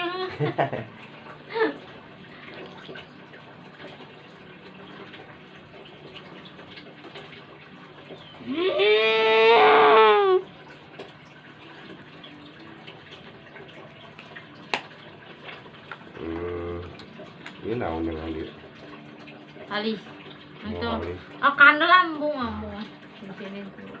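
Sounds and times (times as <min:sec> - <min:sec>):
long wavering cry: 0:08.4 - 0:10.5.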